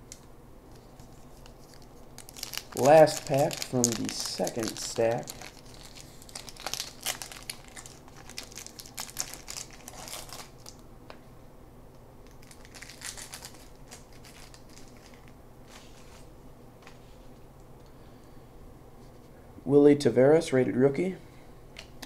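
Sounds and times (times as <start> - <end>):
wrapper tearing and crinkling: 1.0 - 10.8, 12.2 - 15.3.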